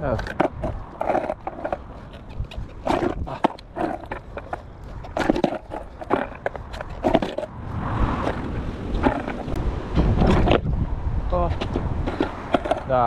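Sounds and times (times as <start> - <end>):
skateboard clacking on tarmac: 0.0 - 7.5, 8.1 - 10.7, 11.5 - 13.0
skateboard wheels rumbling: 0.0 - 13.0.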